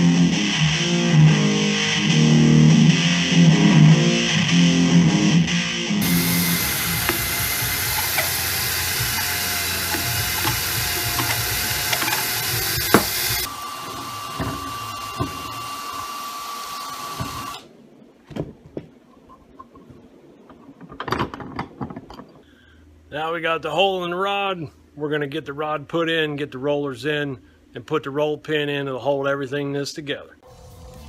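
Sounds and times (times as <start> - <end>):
electric drill boring metal: 6.0 - 17.6
clicks and knocks of handling: 18.3 - 22.4.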